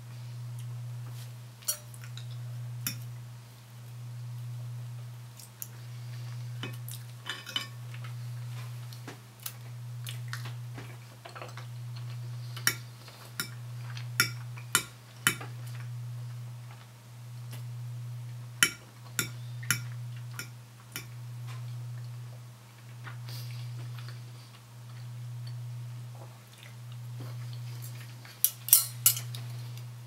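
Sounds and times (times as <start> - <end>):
knife and fork clinking on plate: 1.6 - 2.2, 6.7 - 7.8, 28.5 - 29.4.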